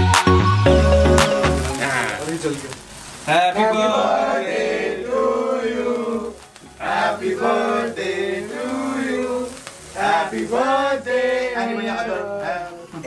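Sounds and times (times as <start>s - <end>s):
sparkler fizzing hiss: 0.7s - 13.0s
men singing in chorus: 3.3s - 13.0s.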